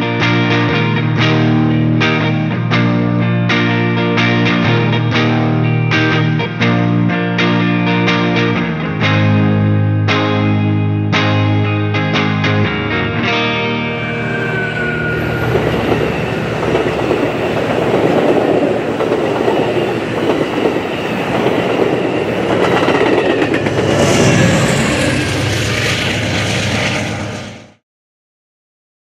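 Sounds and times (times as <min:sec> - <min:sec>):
train passing: 0:13.7 - 0:27.8
train wheels clattering on rails: 0:14.3 - 0:27.0.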